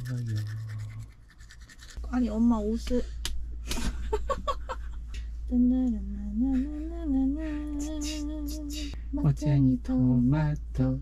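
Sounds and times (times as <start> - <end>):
person humming a slow tune: 5.5 - 8.9.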